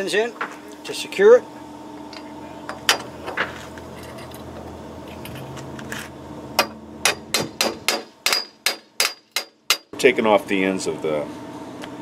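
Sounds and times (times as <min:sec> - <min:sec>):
steady low hum: 0:00.0 - 0:12.0
metal-on-metal tapping: 0:06.6 - 0:09.9.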